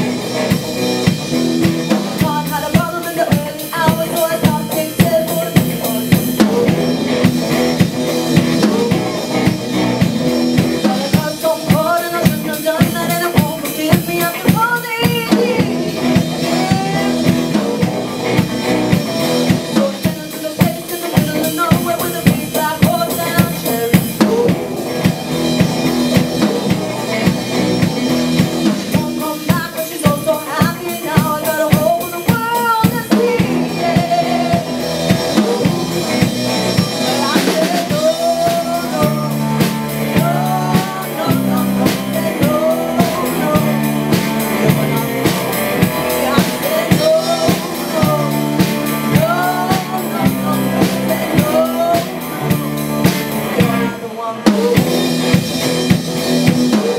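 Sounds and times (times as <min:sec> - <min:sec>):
bass guitar: 0:00.0 - 0:56.9
drum kit beat: 0:00.0 - 0:56.9
electric and acoustic guitars: 0:00.0 - 0:56.9
woman singing: 0:01.9 - 0:06.7, 0:10.8 - 0:17.9, 0:19.7 - 0:24.6, 0:28.8 - 0:54.9.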